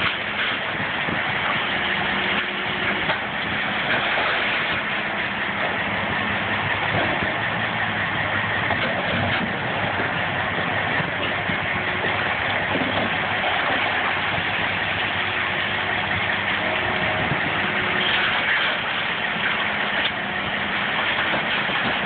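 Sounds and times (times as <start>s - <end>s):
excavator digging rock: 0.0s - 22.0s
heavy diesel engines running: 0.0s - 22.0s.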